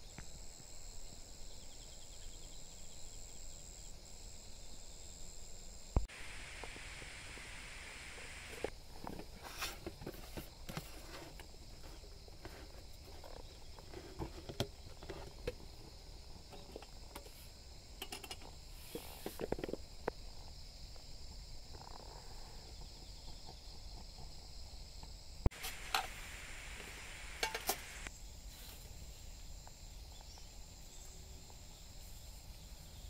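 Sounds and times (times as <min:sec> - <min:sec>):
metal clicks and knocks: 0:18.0 - 0:18.5.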